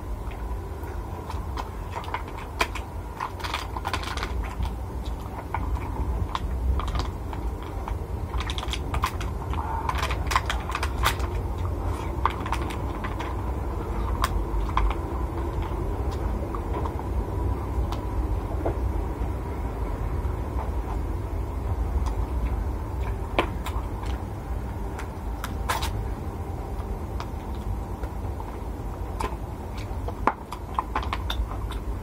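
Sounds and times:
steady low hum: 0.0 - 32.0
chewing: 26.8 - 32.0.

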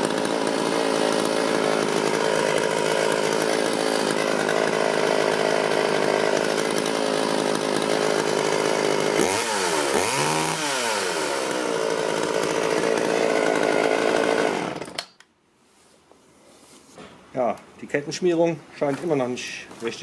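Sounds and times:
chainsaw engine running: 0.0 - 15.0.

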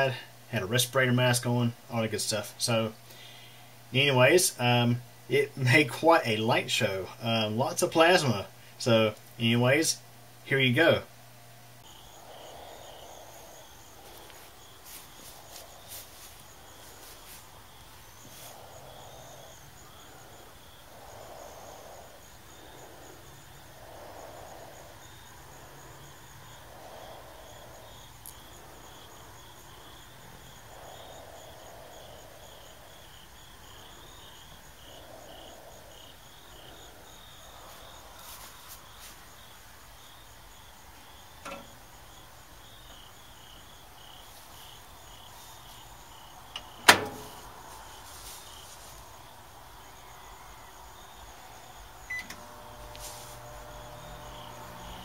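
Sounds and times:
insects chirping: 0.0 - 55.0
microwave door shutting: 41.5 - 41.7, 46.6 - 47.5, 52.1 - 52.9.

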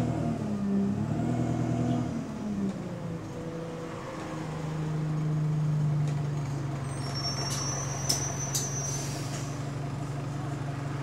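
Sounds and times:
bus engine drone: 0.0 - 11.0
high-pitched squeal: 6.9 - 9.5
short sharp hisses: 8.8 - 9.6.

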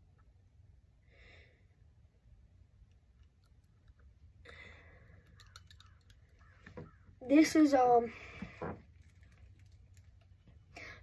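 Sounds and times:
faint breath: 1.0 - 1.9, 4.4 - 5.4, 8.1 - 8.8, 10.7 - 11.0
fishing reel faint clicks: 5.2 - 6.2.

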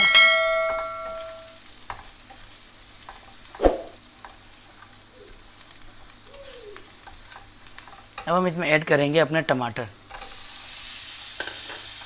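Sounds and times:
onions sizzling in oil: 0.7 - 12.0.

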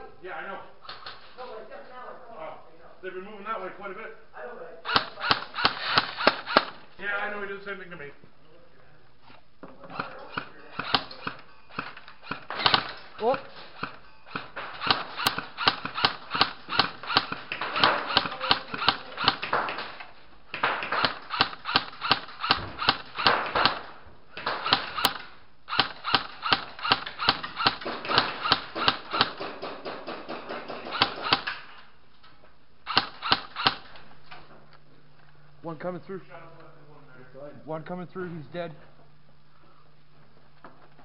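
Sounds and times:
airsoft guns firing rapidly: 4.9 - 6.8, 10.0 - 31.7, 32.9 - 34.0.

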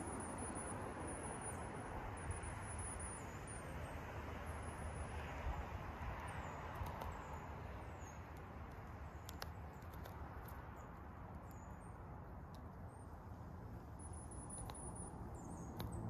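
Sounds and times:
woodpecker pecking: 6.4 - 16.0.

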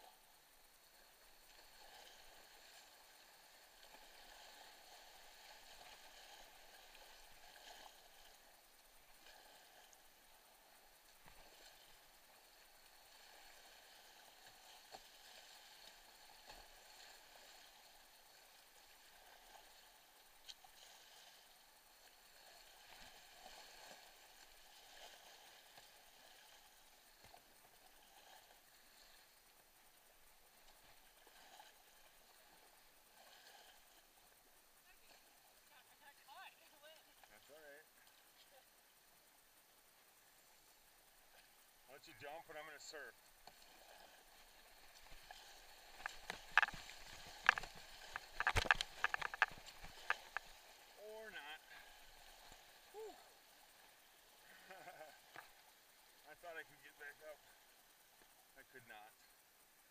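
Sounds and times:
creek rushing: 41.1 - 57.8.

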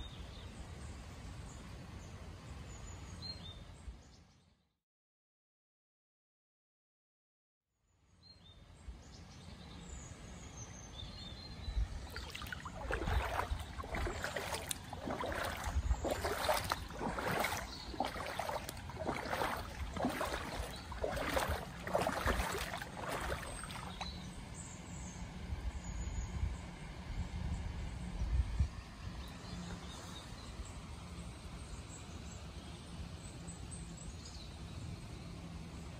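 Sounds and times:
birds chirping: 9.3 - 25.2
wind rumble on microphone: 11.1 - 24.6, 25.3 - 30.8
footsteps sloshing through water: 11.8 - 24.2.

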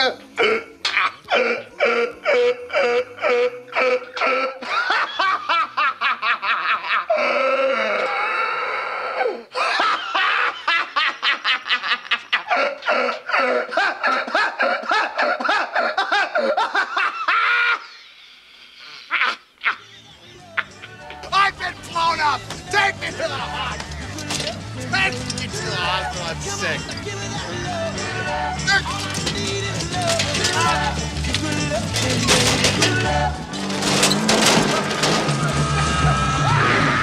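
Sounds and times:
man laughing hysterically: 0.8 - 8.4, 9.5 - 18.1, 19.0 - 21.0.

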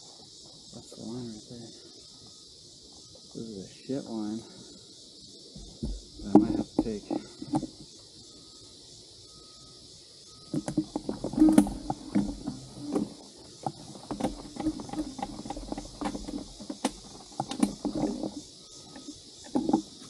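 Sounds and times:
high insect buzz: 0.0 - 20.0
dirt bike thumps and scrapes: 10.5 - 18.5.

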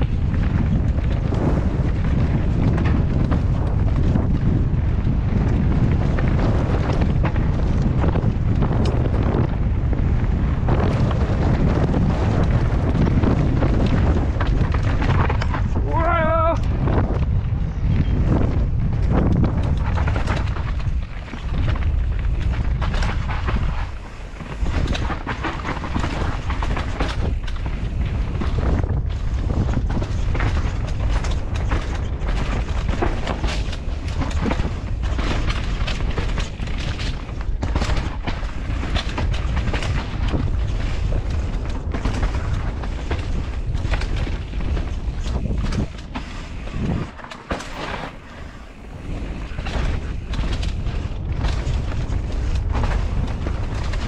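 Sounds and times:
bike rattling over bumps: 0.0 - 54.0
wind buffeting microphone: 0.0 - 54.0.

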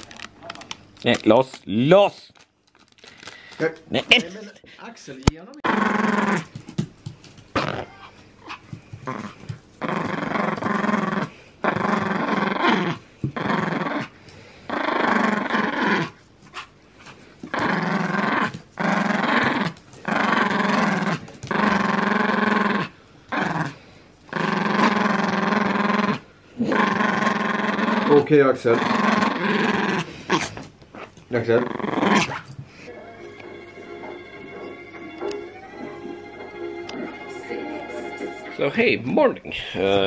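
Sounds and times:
small dog growling: 5.6 - 6.6, 7.5 - 32.6.

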